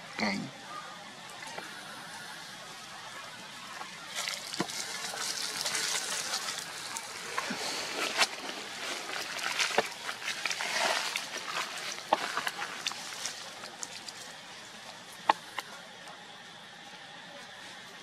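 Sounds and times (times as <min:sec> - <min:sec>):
dry leaves rustling under feet: 0:04.0 - 0:15.4.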